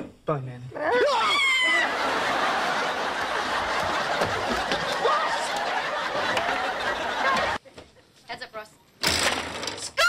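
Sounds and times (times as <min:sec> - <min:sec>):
studio audience laughing: 0:01.8 - 0:07.6.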